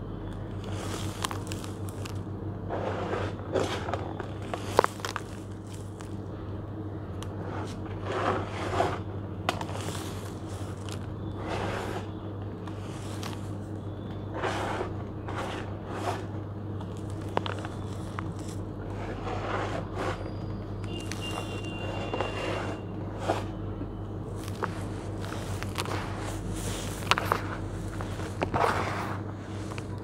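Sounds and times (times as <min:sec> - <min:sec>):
gritty mix pouring into plastic tub: 0:00.6 - 0:06.2, 0:09.5 - 0:12.1.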